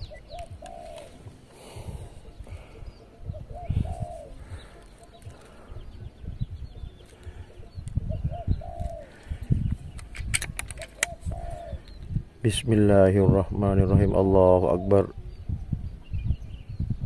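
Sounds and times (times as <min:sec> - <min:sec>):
dove cooing: 0:00.0 - 0:12.6
sharp clicks: 0:09.7 - 0:11.2.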